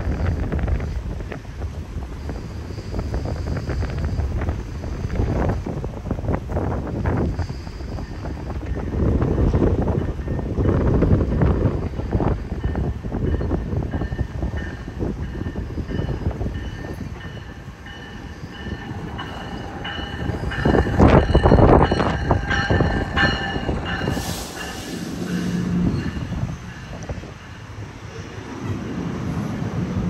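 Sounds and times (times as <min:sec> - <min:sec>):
train wheels rumbling: 0:00.0 - 0:30.0
high brake hiss: 0:24.0 - 0:26.2.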